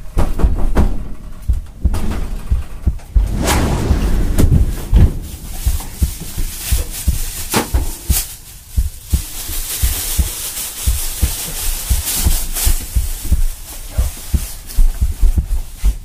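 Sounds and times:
low deep thumps: 0:00.4 - 0:09.4
sharp hits: 0:03.2 - 0:07.6.

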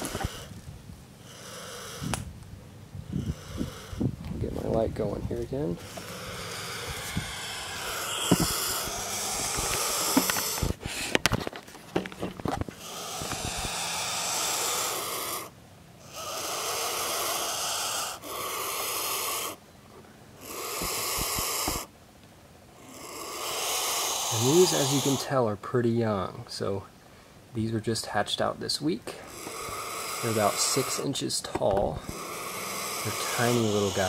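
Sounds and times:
vulture chicks hissing: 0:00.0 - 0:00.6, 0:01.2 - 0:02.3, 0:03.0 - 0:11.3, 0:12.6 - 0:19.6, 0:20.3 - 0:21.9, 0:22.7 - 0:25.4, 0:28.8 - 0:34.0
sharp knocks and clatter: 0:11.2 - 0:12.7.

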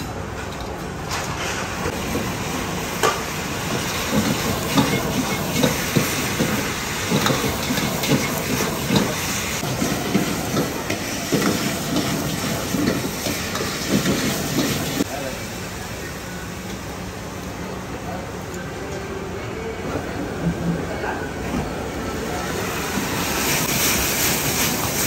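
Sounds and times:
hiss of frying food: 0:01.3 - 0:18.2, 0:22.1 - 0:25.0.

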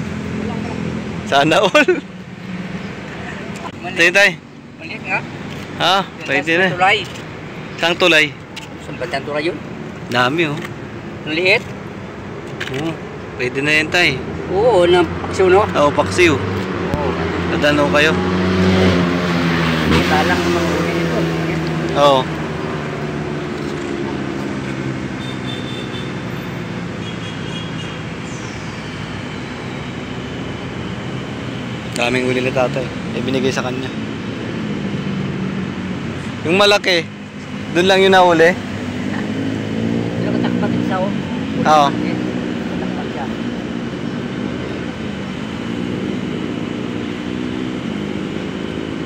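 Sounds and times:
engine drone: 0:00.0 - 0:49.0
low engine drone: 0:28.0 - 0:49.0.

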